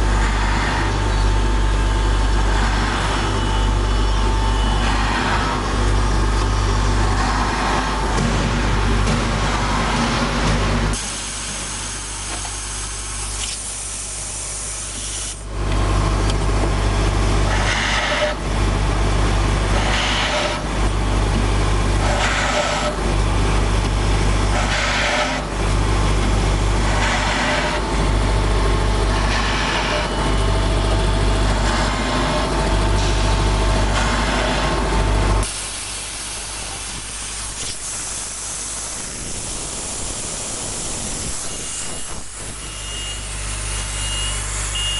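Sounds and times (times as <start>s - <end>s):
noisy drilling bursts: 36.9s - 44.9s
short beeps: 42.6s - 44.9s.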